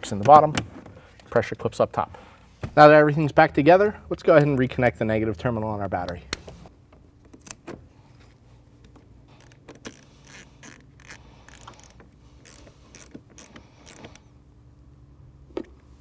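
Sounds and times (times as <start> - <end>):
hand ratchet clicking: 9.3 - 14.2.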